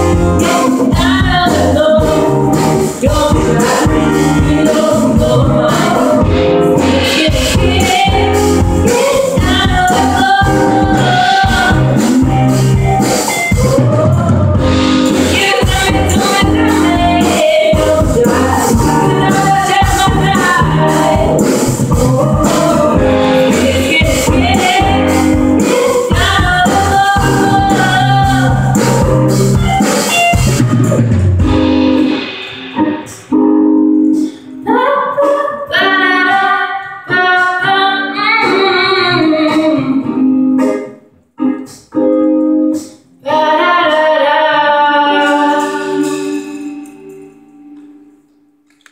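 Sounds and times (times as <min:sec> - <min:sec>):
live pop-rock band: 0:00.0 - 0:48.0
woman singing: 0:00.4 - 0:29.0, 0:34.6 - 0:40.3, 0:43.2 - 0:47.0.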